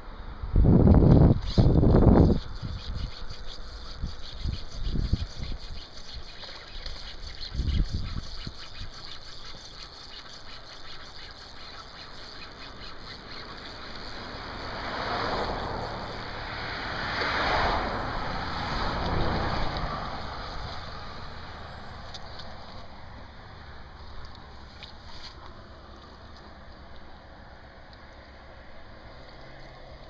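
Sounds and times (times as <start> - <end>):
fish thrashing in water: 2.2 - 23.0.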